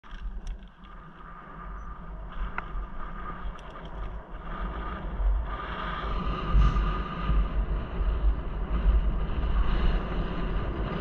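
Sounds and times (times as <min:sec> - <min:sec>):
small clicks and rattles: 0:00.0 - 0:01.3, 0:03.4 - 0:04.2
bike tyres on rough road: 0:00.0 - 0:11.0
wind buffeting microphone: 0:00.0 - 0:11.0.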